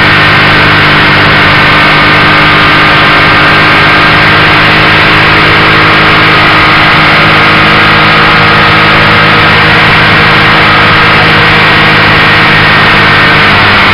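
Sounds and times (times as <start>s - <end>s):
motorcycle engine cruising: 0.0s - 13.9s
wind and road noise: 0.0s - 13.9s.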